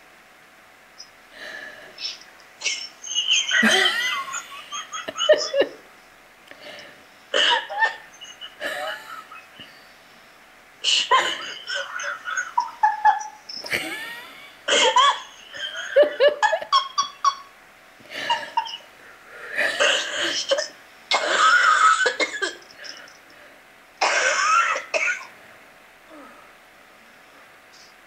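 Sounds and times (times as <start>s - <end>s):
woman laughing: 2.0s - 5.8s, 7.4s - 9.7s, 10.8s - 17.5s, 18.1s - 18.9s.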